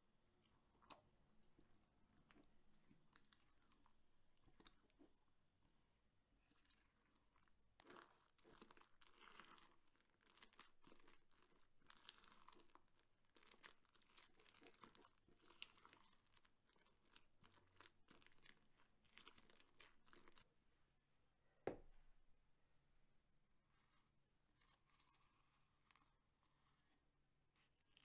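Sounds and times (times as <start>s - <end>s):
slime crackling and crinkling: 6.4s - 20.5s, 27.6s - 28.0s.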